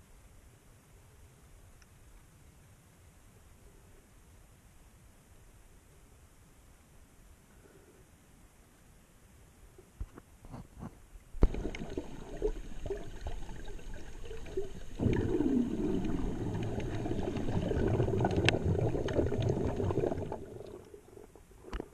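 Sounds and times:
water sloshing and gurgling: 0:11.4 - 0:21.9.

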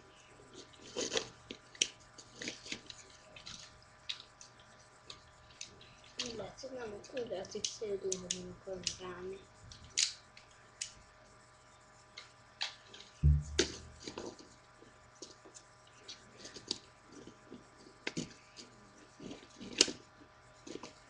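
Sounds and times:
dull thump: 0:13.2 - 0:14.1.

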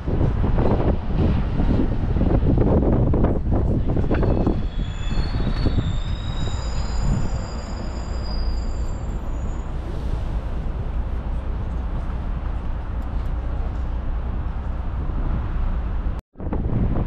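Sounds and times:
bus engine rumble: 0:00.0 - 0:17.0
high-pitched squeal: 0:03.7 - 0:11.1.

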